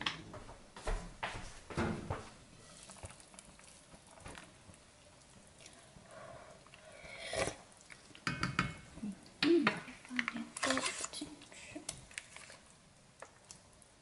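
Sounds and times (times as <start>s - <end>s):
pot simmering with faint bubbling: 2.1s - 14.0s
wooden spoon knocking a pot: 8.2s - 9.8s.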